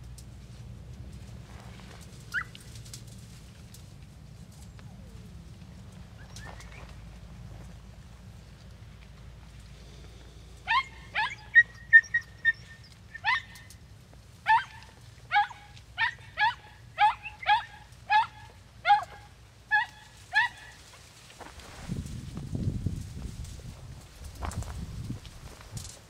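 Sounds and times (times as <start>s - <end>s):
hounds yelping: 2.3s - 2.7s, 10.6s - 13.8s, 14.4s - 20.9s.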